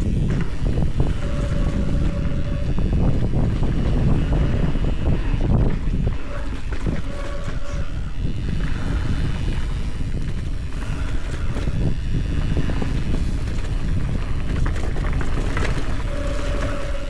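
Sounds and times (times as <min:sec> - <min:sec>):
bike rattling: 0:00.0 - 0:17.0
wind buffeting microphone: 0:00.0 - 0:17.0
tyres rolling on dirt and stones: 0:13.1 - 0:17.0.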